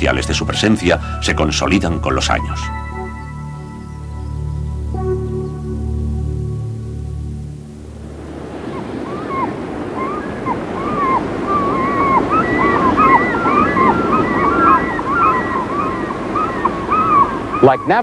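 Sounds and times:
soft music: 0.0s - 9.4s
gulls calling: 0.0s - 18.0s
sea surf: 0.0s - 18.0s.

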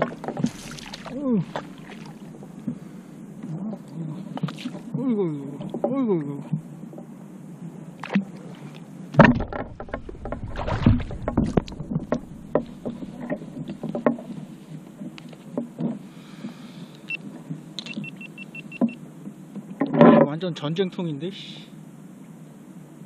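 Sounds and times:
knocking and clattering on kayak: 0.0s - 0.9s, 9.2s - 16.0s
low rumble: 9.2s - 13.9s.

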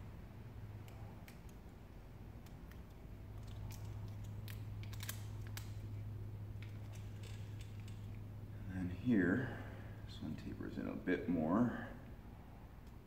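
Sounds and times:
low steady hum: 0.0s - 13.0s
knife and film clicks: 0.8s - 1.7s, 2.4s - 5.8s.

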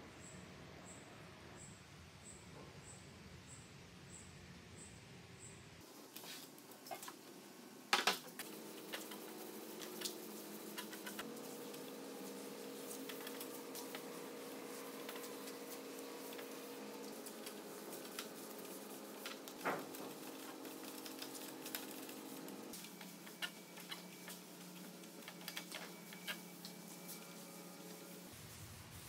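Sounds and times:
cloth rubbing on wood: 8.4s - 29.0s.

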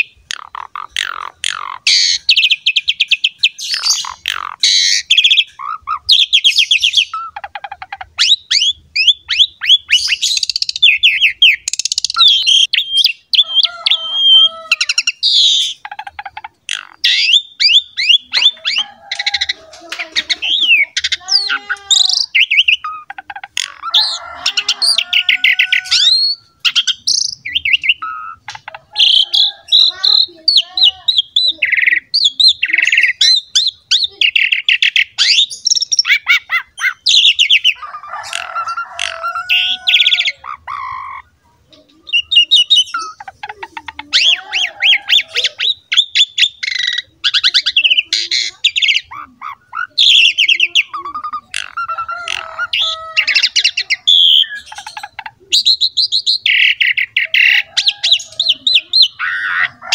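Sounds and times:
starling singing: 0.0s - 59.9s.

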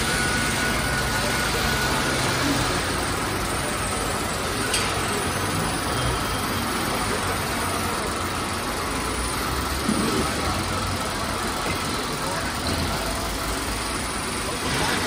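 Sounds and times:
machinery hum and hiss: 0.0s - 15.0s.

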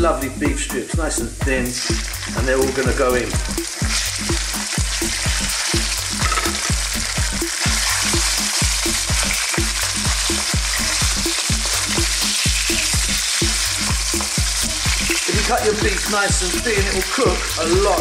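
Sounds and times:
beef sizzling in oil: 1.4s - 18.0s.

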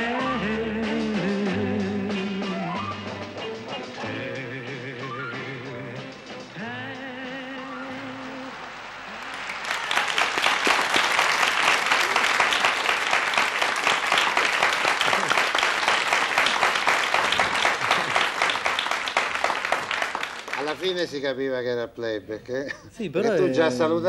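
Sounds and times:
audience applause: 8.4s - 21.2s.

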